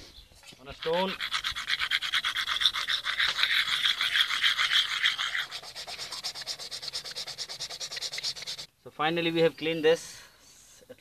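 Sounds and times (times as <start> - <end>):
shell scrubbing against wet stone: 0.0 - 8.7.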